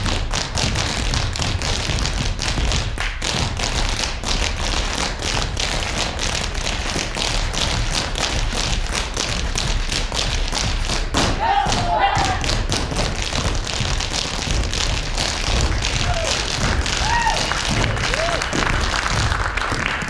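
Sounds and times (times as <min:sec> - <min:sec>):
feet tapping on stage floor: 0:00.0 - 0:20.0.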